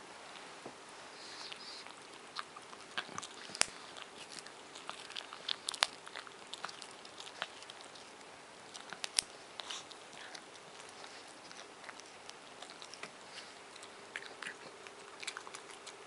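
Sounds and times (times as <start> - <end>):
dog gnawing a chew bone: 1.2 - 16.0.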